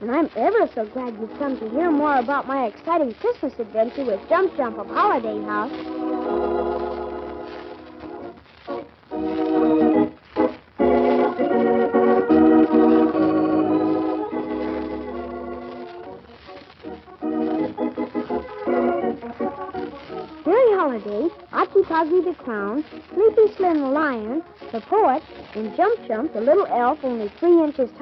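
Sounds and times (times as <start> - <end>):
organ playing held chords: 4.2 - 20.5.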